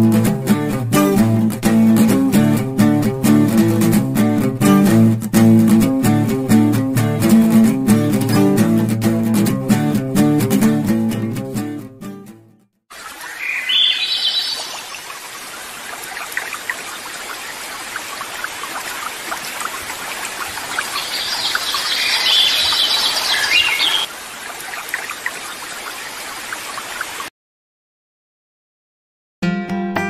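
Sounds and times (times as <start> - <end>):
sea water washing: 12.9 - 27.3
wind: 12.9 - 27.3.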